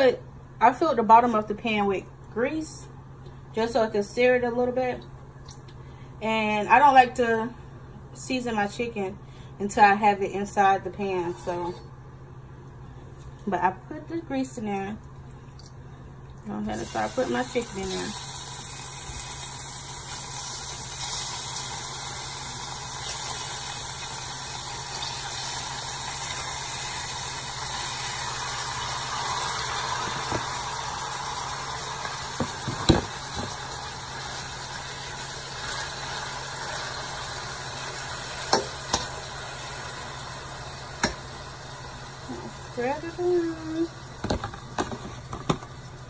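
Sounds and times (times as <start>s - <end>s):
chicken sizzling in oil: 16.8s - 43.8s.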